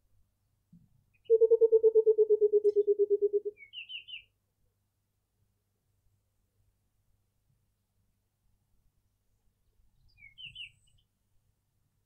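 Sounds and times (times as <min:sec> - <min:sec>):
small bird twittering: 0:01.2 - 0:04.2, 0:10.1 - 0:11.0
bird bubbling hoots: 0:01.3 - 0:03.5.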